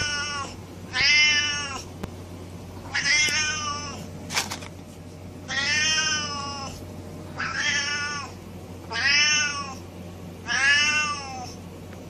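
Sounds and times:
cat meowing: 0:00.0 - 0:01.8, 0:02.9 - 0:04.0, 0:05.5 - 0:06.7, 0:07.4 - 0:08.3, 0:10.5 - 0:11.5.

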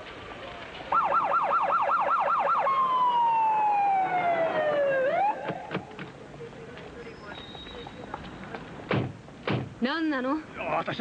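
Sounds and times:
police car siren wailing: 0:00.9 - 0:05.9.

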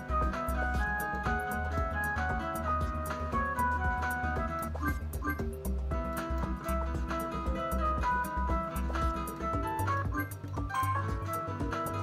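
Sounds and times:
slot machine electronic jingle: 0:04.1 - 0:05.6, 0:09.8 - 0:12.0.

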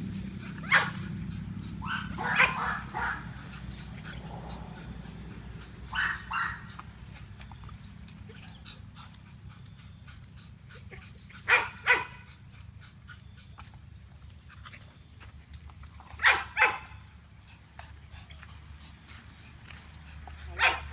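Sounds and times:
low steady hum: 0:00.0 - 0:20.9
dog barking: 0:00.6 - 0:01.1, 0:01.8 - 0:03.4, 0:05.9 - 0:06.8, 0:11.4 - 0:12.2, 0:16.2 - 0:17.0, 0:20.5 - 0:20.9.

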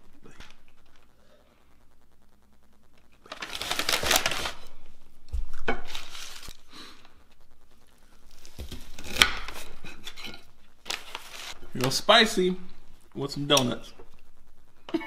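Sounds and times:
food packaging rustling: 0:03.2 - 0:06.7, 0:08.3 - 0:12.2.

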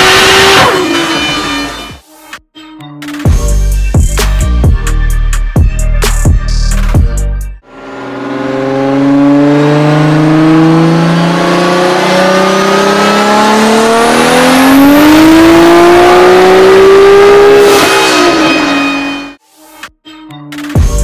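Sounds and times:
car engine revving at full throttle: 0:00.0 - 0:01.9, 0:07.6 - 0:19.4.

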